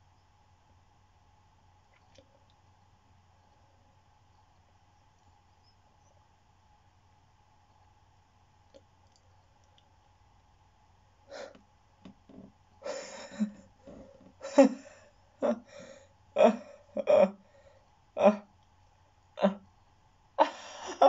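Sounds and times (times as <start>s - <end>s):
boy laughing in short bursts: 12.9s - 17.3s, 20.4s - 21.0s.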